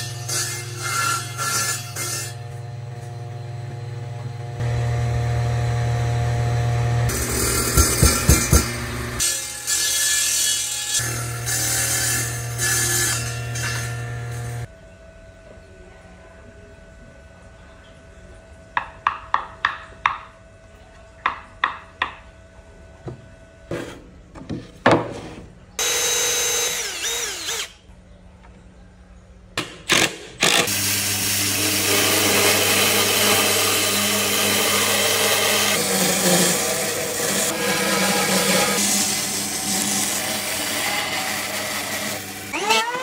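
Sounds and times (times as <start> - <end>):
bandsaw cutting wood: 4.6 - 14.7, 25.8 - 27.8, 29.9 - 43.0
cordless drill running: 25.8 - 27.8.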